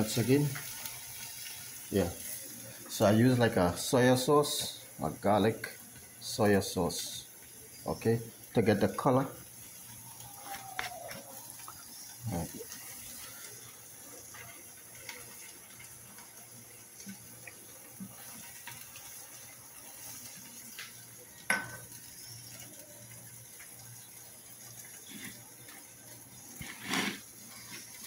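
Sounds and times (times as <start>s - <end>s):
faint steady hiss: 0.0s - 28.0s
metal pots and utensils clinking: 21.5s - 21.9s.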